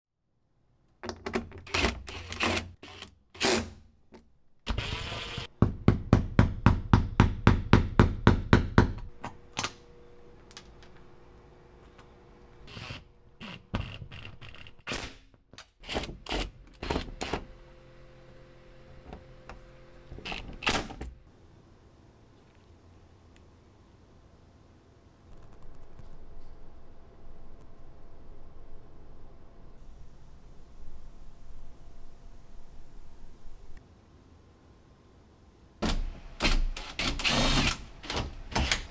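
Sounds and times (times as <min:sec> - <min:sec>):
faint steady hum: 0:09.0 - 0:14.9, 0:16.7 - 0:35.9.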